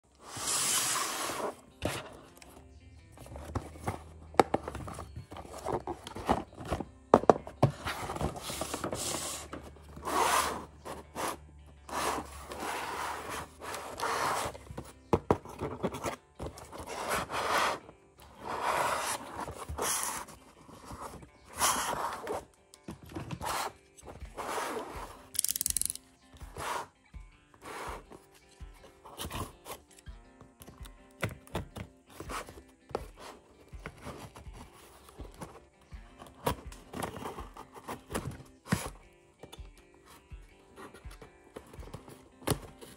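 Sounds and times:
cardboard rubbing and scraping: 0.2 - 2.2, 3.2 - 25.3.

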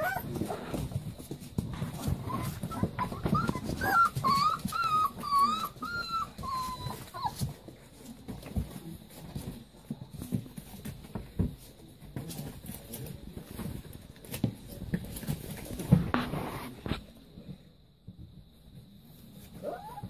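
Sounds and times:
puppy whining: 0.0 - 1.0, 1.9 - 7.6, 19.5 - 20.0
puppies scuffling and knocking: 0.0 - 20.0.

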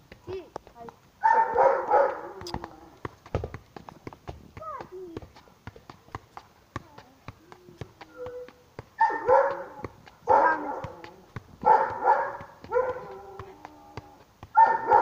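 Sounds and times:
football taps: 0.0 - 15.0
dog barking: 1.2 - 2.5, 8.1 - 13.5, 14.6 - 15.0.

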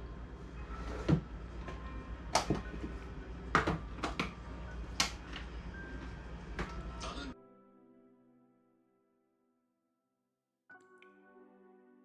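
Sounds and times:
low steady hum: 0.0 - 7.4.

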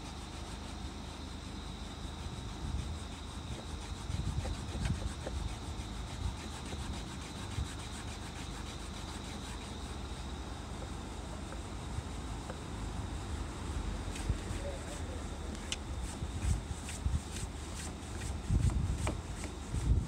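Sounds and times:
eraser scrubbing plastic: 3.4 - 10.0.

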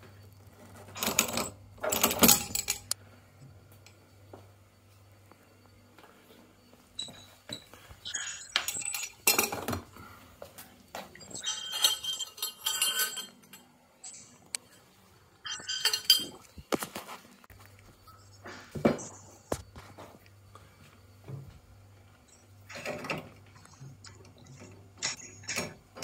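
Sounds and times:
metal tools clinking: 0.7 - 3.0, 7.0 - 9.8, 11.2 - 14.8, 15.5 - 16.6.

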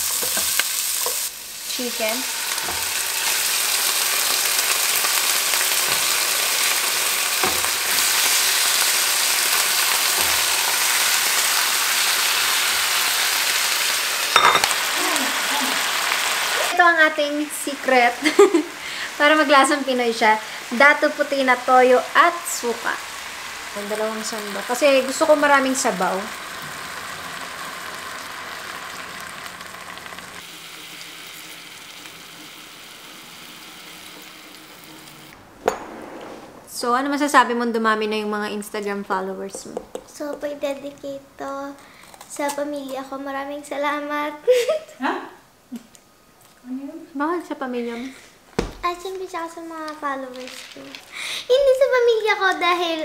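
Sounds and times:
chicken sizzling in a pot: 0.0 - 35.4.

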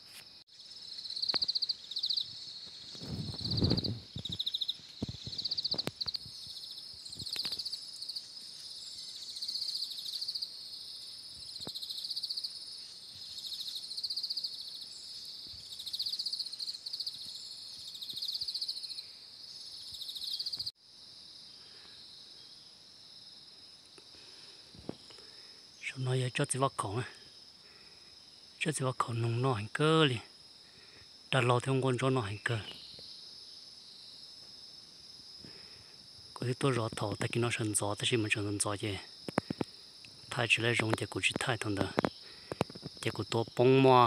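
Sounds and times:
insects chirping: 0.0 - 44.0.

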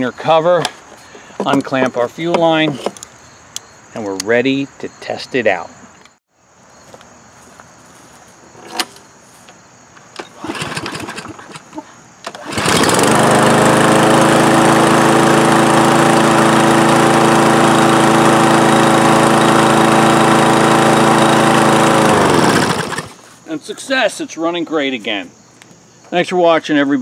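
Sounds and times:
lawn mower engine running: 10.0 - 23.3.

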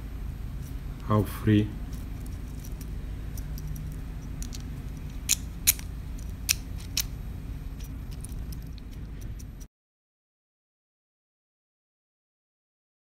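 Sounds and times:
small metal and plastic parts clicking: 1.9 - 9.7.

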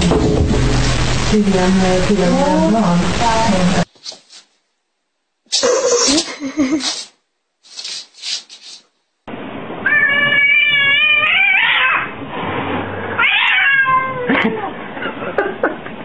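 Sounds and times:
cat meowing: 9.8 - 12.1, 13.2 - 14.7.

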